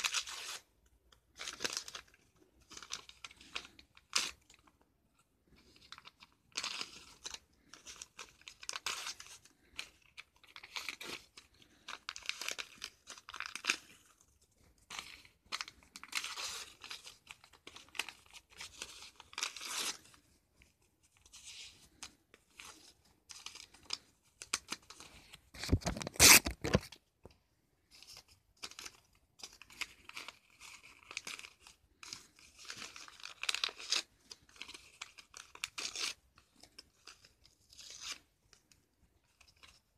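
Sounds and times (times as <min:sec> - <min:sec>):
paper tearing and crumpling: 0:21.3 - 0:27.0.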